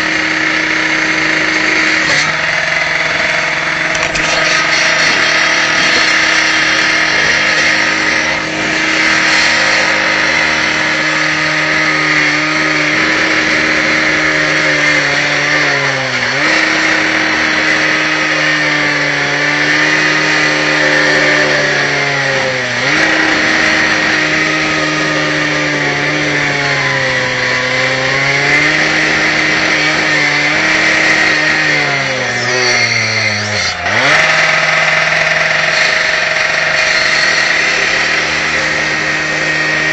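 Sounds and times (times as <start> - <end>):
power cutter cutting brick: 0.0 - 39.9.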